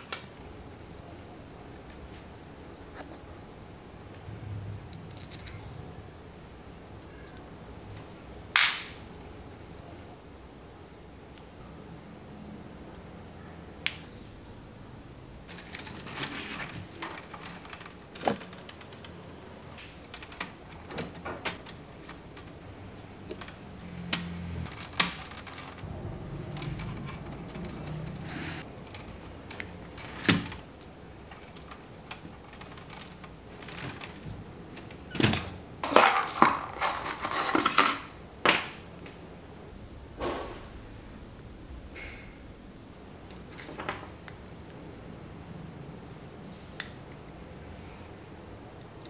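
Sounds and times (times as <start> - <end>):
hard plastic parts clicking: 15.4 - 22.6.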